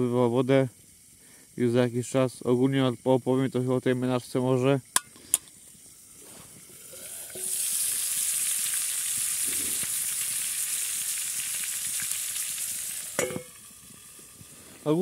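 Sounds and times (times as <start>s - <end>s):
chicken sizzling in a pan: 0.0s - 15.0s.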